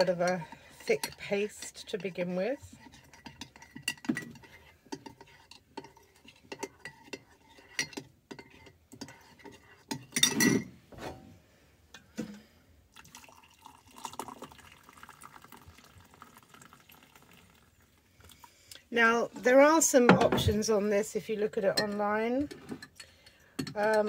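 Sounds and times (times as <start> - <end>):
water pouring into a mug: 12.9 - 18.6.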